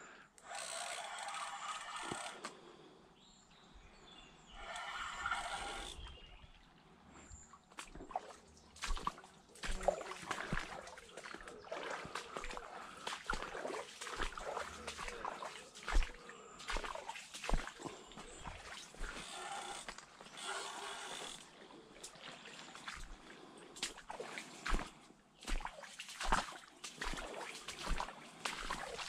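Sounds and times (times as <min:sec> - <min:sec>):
water splashing: 0:07.5 - 0:29.0
fish thrashing in water: 0:07.8 - 0:20.4.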